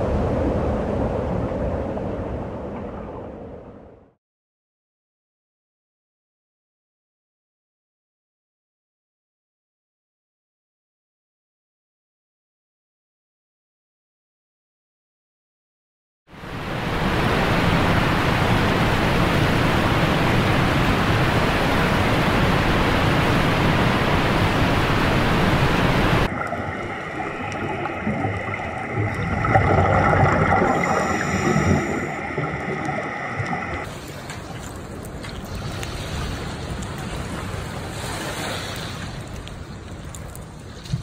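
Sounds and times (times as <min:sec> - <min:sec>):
underwater humming tones: 0:16.4 - 0:33.9
waterfall rushing: 0:16.5 - 0:33.9.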